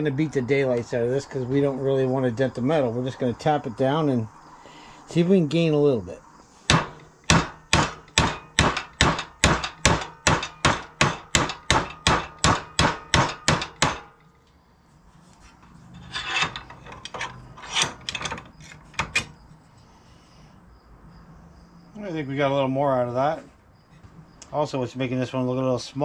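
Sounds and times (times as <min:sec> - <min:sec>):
hammer tapping steel: 0:06.7 - 0:14.3
metal scraping and clinking: 0:15.2 - 0:19.8.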